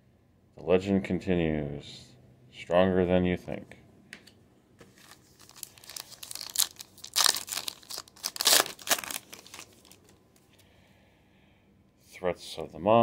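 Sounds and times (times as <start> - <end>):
foil wrapper crinkling and tearing: 4.9 - 10.2.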